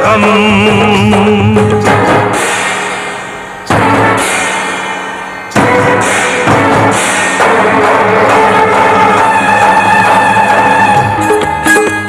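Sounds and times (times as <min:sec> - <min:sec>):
heavy drum and cymbal hits: 0:00.0 - 0:09.2
film song band playing: 0:00.0 - 0:12.0.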